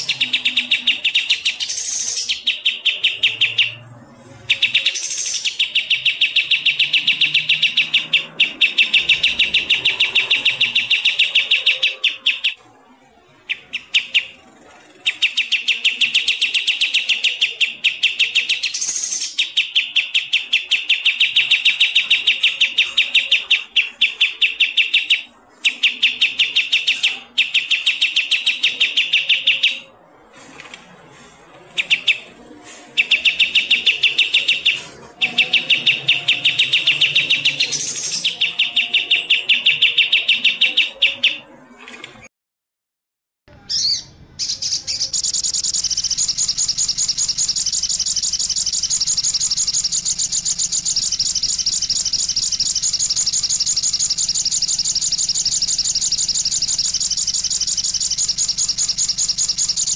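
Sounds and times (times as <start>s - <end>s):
songbird chirping: 0.0s - 12.7s, 31.5s - 42.2s, 43.5s - 59.9s.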